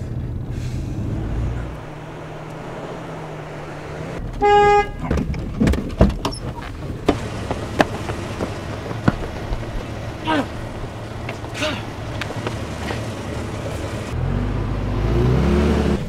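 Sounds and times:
car interior rumble: 0:00.0 - 0:16.0
car horn honking: 0:04.3 - 0:05.1.

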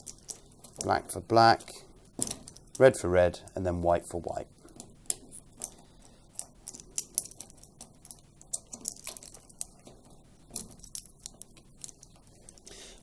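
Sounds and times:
plastic connectors clicking: 0:04.7 - 0:12.7.

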